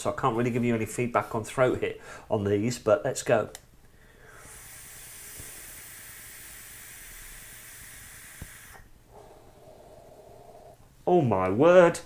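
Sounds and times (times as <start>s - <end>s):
e-cigarette vapour hiss: 4.2s - 10.8s.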